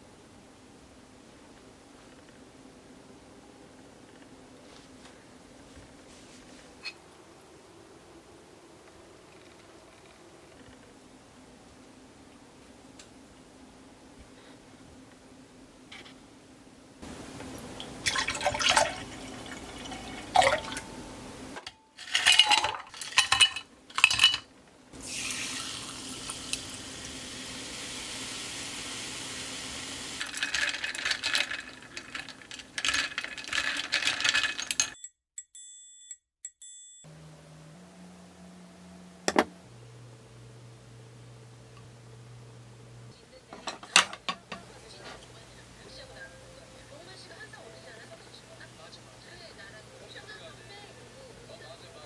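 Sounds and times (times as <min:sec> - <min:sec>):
sparkling water fizzing: 0:17.1 - 0:21.0, 0:25.0 - 0:32.4
liquid pouring into a glass: 0:18.0 - 0:20.9, 0:25.0 - 0:26.7.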